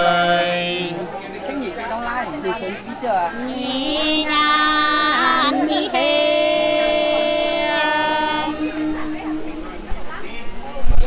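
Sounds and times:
person singing long held notes: 0:00.0 - 0:01.1, 0:03.4 - 0:10.4.

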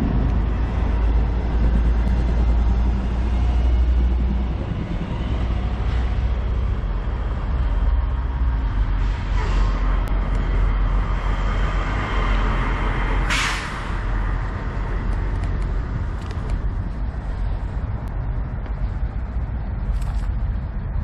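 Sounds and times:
air brake hiss: 0:09.0 - 0:09.8, 0:13.3 - 0:14.0.

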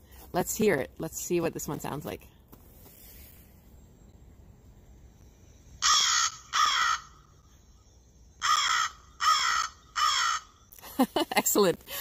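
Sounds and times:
crow cawing: 0:05.8 - 0:07.3, 0:08.4 - 0:10.6.

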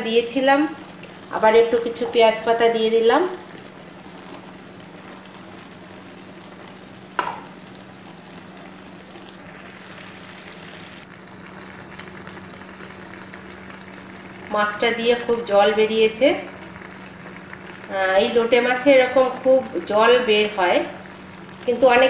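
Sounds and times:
food sizzling in a pan: 0:00.0 - 0:22.0
low hum: 0:03.4 - 0:18.7.

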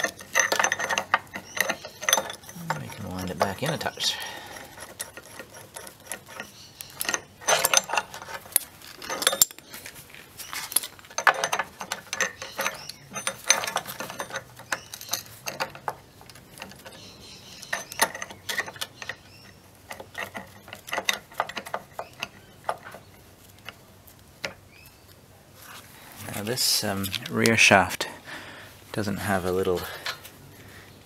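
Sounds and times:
metal gear puller clinking: 0:00.0 - 0:09.7, 0:10.6 - 0:23.8.

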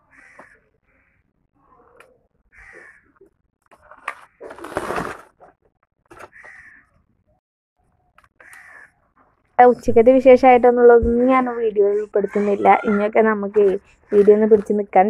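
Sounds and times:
crows cawing: 0:00.0 - 0:03.2, 0:06.2 - 0:07.0, 0:08.4 - 0:09.1.

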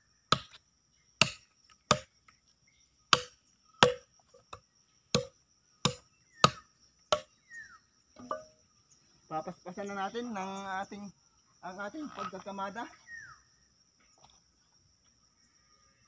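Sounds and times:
high insect trill: 0:00.0 - 0:16.0
machete chopping wood: 0:00.3 - 0:00.6, 0:01.2 - 0:02.1, 0:03.1 - 0:04.0, 0:05.9 - 0:07.3.

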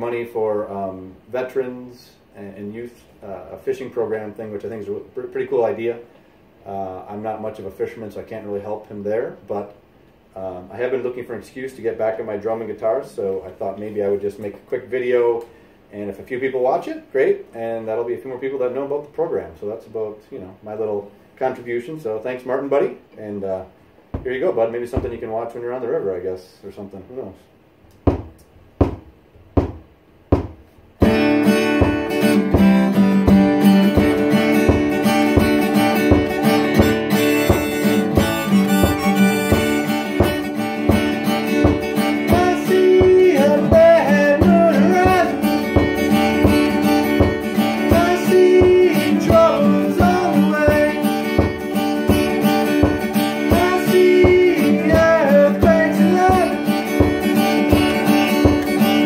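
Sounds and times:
taps counting in: 0:24.1 - 0:25.3, 0:27.9 - 0:59.0
kick drum beat: 0:24.2 - 0:25.2, 0:28.0 - 0:58.9
strummed acoustic guitar: 0:31.0 - 0:59.0
man singing: 0:41.6 - 0:51.6, 0:52.8 - 0:59.0.

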